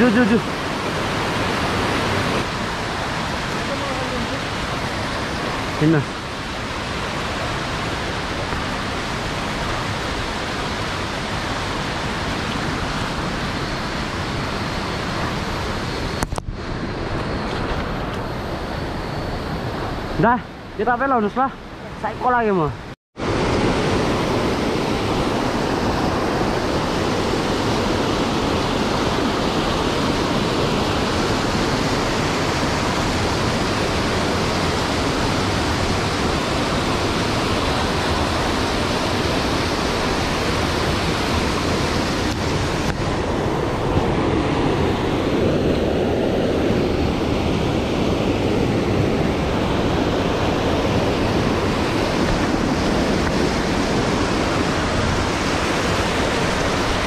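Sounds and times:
stream rushing over boulders: 0:23.2 - 0:44.8, 0:49.3 - 0:57.0.

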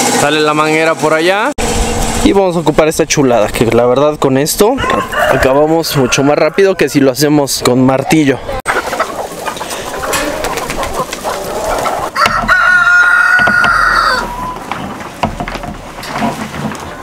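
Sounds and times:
rooster crowing: 0:04.8 - 0:07.1, 0:11.5 - 0:14.7
chickens clucking: 0:04.8 - 0:17.0.

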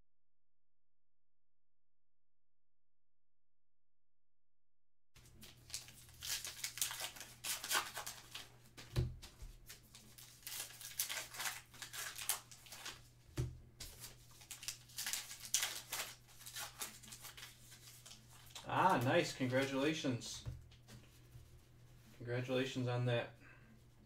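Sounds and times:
plastic wrapper tearing and crinkling: 0:05.2 - 0:08.6, 0:09.6 - 0:13.1, 0:13.8 - 0:19.0.

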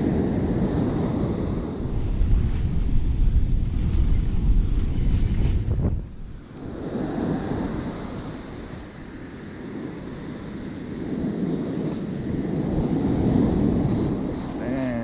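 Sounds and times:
wind buffeting microphone: 0:00.0 - 0:15.0
ocean surf breaking on beach: 0:06.4 - 0:15.0.

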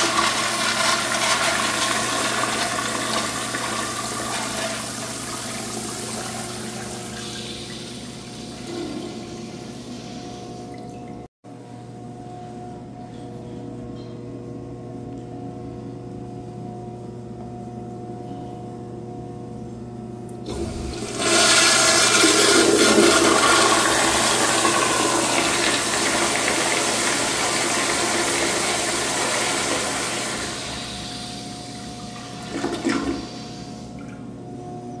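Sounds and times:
toilet flushing rush of water: 0:00.0 - 0:09.8, 0:20.5 - 0:34.2.

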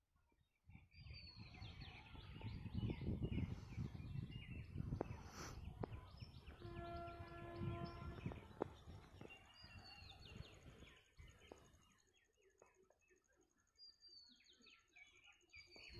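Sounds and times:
birds chirping: 0:01.0 - 0:13.2
horn steady note: 0:06.6 - 0:08.5.

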